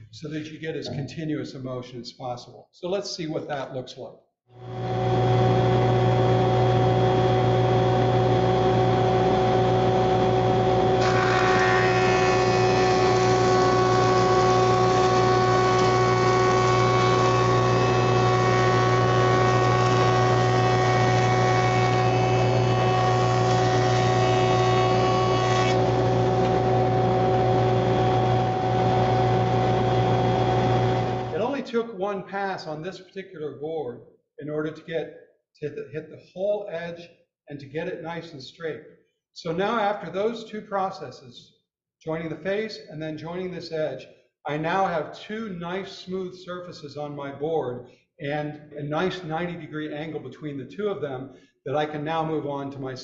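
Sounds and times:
jointer motor hum: 4.6 - 31.4
cutterhead whirring through wood: 8.6 - 31.4.

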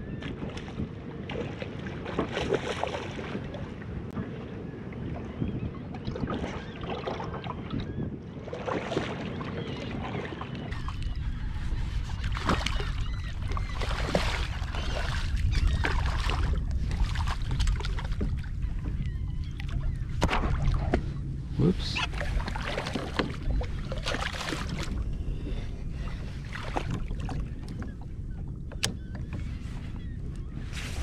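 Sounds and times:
wind noise on microphone: 4.1 - 9.2, 9.8 - 31.0
faint bird calls: 9.2 - 16.5, 17.4 - 31.0.

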